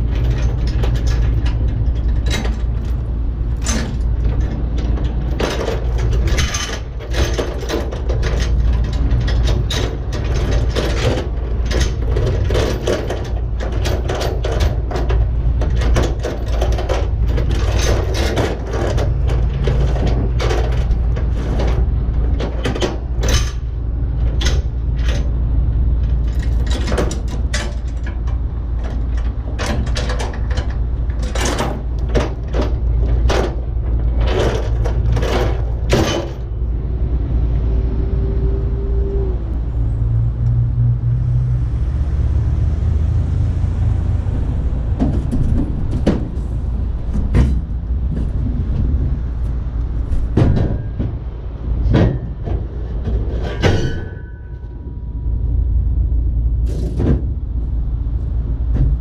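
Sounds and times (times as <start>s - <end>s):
metallic clicks and clanks: 0.0s - 36.8s
low engine rumble: 0.0s - 59.0s.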